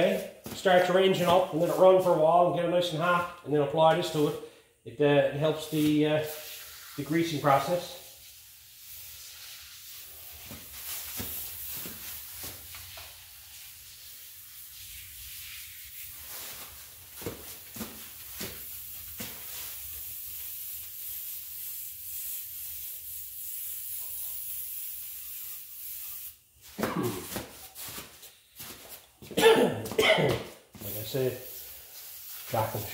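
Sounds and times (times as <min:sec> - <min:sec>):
aerosol can spraying hiss: 0:07.9 - 0:16.1, 0:18.6 - 0:26.4, 0:30.8 - 0:32.9.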